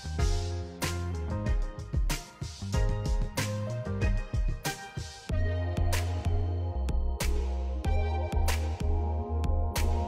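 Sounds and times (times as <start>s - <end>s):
bass line: 0.0s - 2.0s, 2.6s - 4.6s, 5.3s - 10.0s
drum beat: 1.5s - 3.4s, 4.0s - 5.3s.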